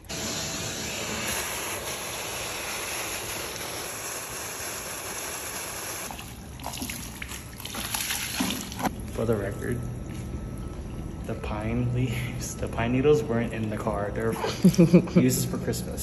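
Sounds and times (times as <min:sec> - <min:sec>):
shop vac sucking water: 0:00.0 - 0:09.8.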